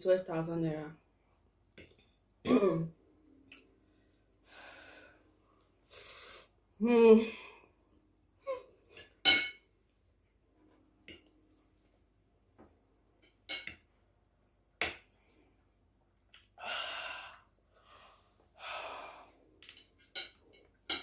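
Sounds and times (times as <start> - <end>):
forks clicking against plates: 19.7 - 21.0.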